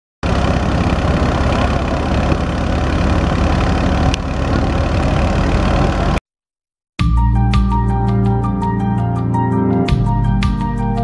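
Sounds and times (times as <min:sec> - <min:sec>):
thresher machinery noise: 0:00.2 - 0:06.2
tractor diesel engine running: 0:00.2 - 0:06.2.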